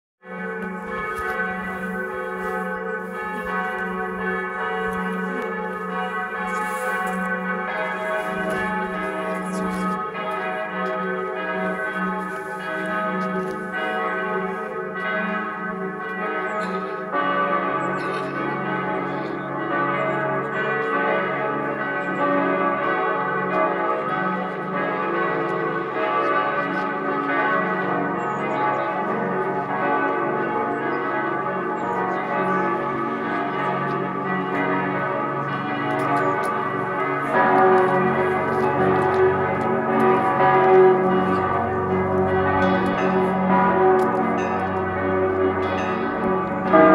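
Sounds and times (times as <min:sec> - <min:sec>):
church bells ringing in peal: 0:00.2 - 0:46.9
deeper bell ringing: 0:35.0 - 0:46.9.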